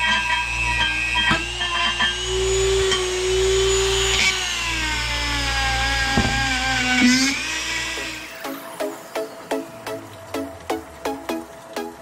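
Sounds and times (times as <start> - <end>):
rotary tool whining on metal: 0.0 - 9.1.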